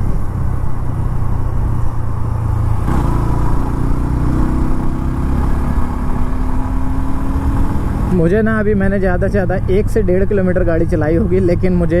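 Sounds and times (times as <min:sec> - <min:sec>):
motorcycle engine running: 0:00.0 - 0:08.5
road noise: 0:00.0 - 0:12.0
wind: 0:00.0 - 0:12.0.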